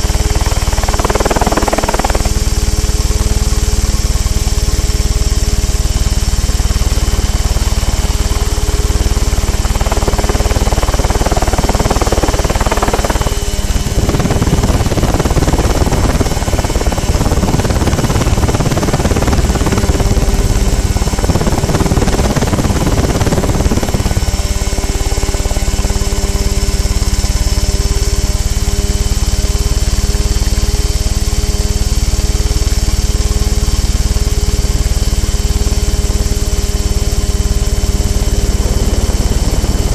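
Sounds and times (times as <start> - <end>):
helicopter engine running: 0.0 - 39.9
wind buffeting microphone: 7.4 - 24.9, 33.2 - 39.9.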